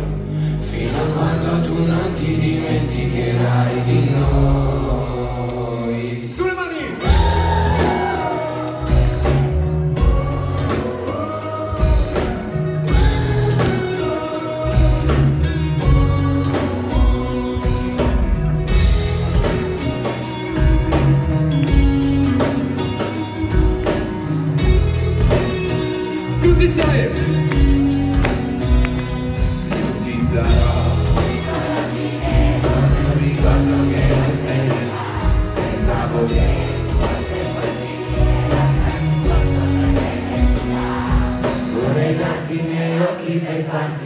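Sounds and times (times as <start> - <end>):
pop-rap song over loudspeakers: 0.6 - 9.4, 29.8 - 44.0.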